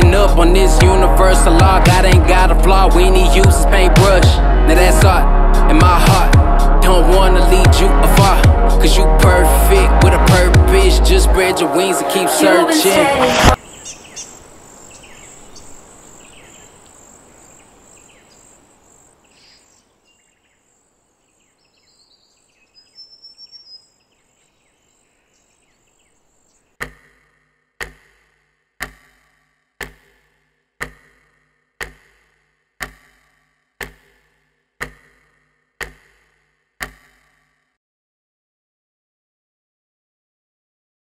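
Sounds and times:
insects chirping: 0:13.6 - 0:26.8
sharp deep tick: 0:30.8 - 0:32.1.

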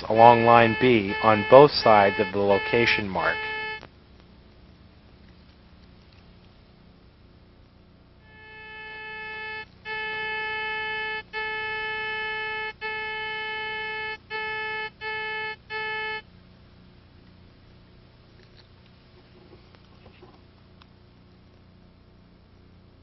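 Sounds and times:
buzzy receiver signal tone: 0:00.0 - 0:03.9, 0:08.2 - 0:16.3.

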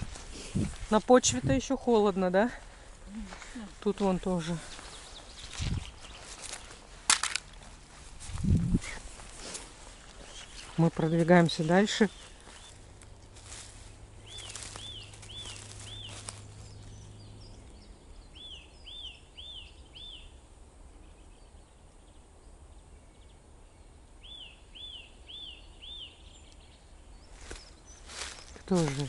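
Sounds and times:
footsteps on forest floor: 0:00.0 - 0:17.1, 0:27.2 - 0:29.0.

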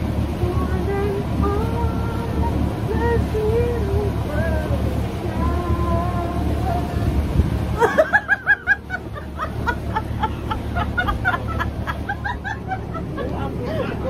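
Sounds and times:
woman giggling: 0:07.8 - 0:14.0.

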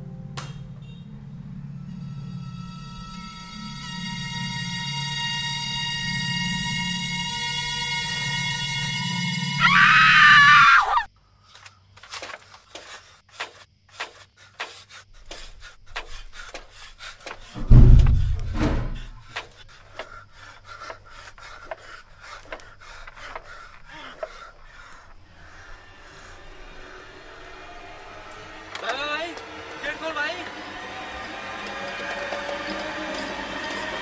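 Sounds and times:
ominous horror music: 0:00.0 - 0:11.1, 0:16.3 - 0:34.0
heavy low thud: 0:17.6 - 0:19.3.

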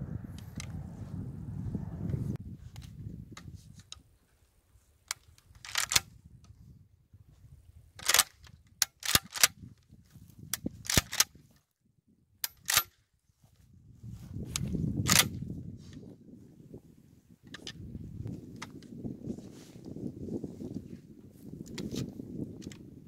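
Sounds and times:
shotgun metallic clicks and clacks: 0:05.1 - 0:06.1, 0:08.0 - 0:09.7, 0:10.8 - 0:11.4, 0:12.4 - 0:13.0, 0:14.6 - 0:15.4.

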